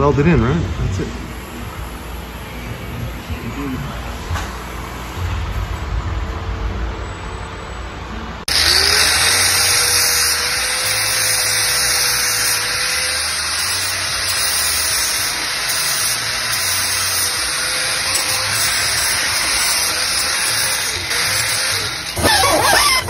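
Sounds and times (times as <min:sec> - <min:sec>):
angle grinder grinding metal: 0:08.5 - 0:23.0.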